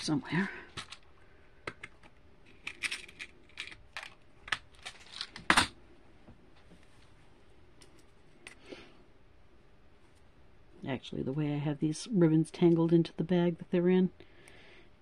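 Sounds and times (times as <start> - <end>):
small metal pieces clicking: 2.5 - 5.4.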